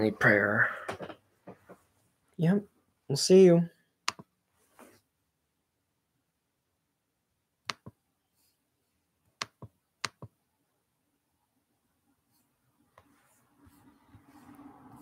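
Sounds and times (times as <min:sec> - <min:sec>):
sharp clicks: 0:04.0 - 0:04.3.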